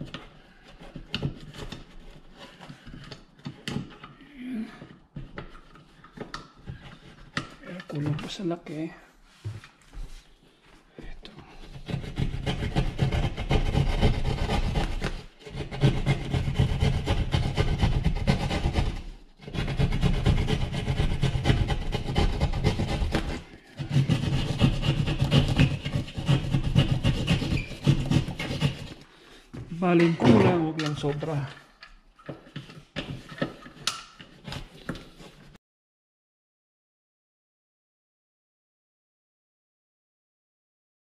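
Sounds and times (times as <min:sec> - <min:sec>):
hand saw rasping through drywall: 0:00.0 - 0:04.2, 0:04.8 - 0:08.2, 0:11.5 - 0:29.9, 0:30.8 - 0:35.6.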